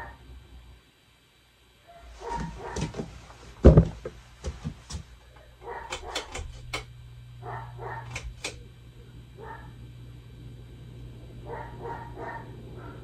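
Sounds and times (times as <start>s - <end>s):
dog barking: 0.0s - 0.2s, 1.8s - 3.0s, 5.2s - 6.3s, 7.4s - 8.2s, 9.4s - 9.8s, 11.4s - 13.0s
steady low hum: 0.0s - 13.0s
loud thump: 3.6s - 4.0s.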